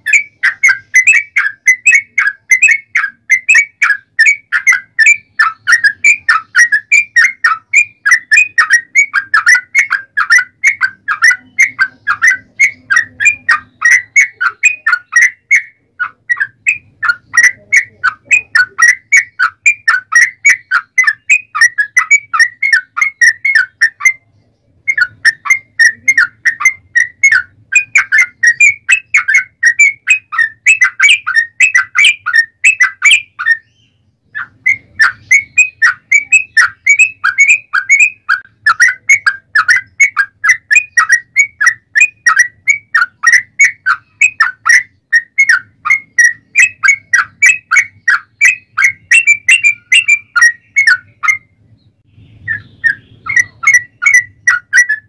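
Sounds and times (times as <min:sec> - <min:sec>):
bulbul singing: 0:00.0 - 0:55.0.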